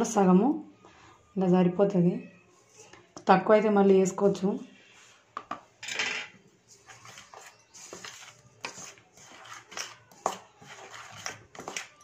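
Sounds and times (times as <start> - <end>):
spices stirred in a metal bowl: 6.3 - 12.0.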